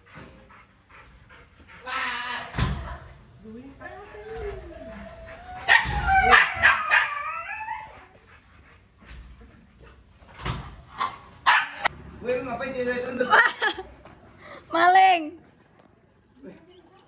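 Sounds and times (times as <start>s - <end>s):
dog whining and yelping: 4.1s - 8.4s.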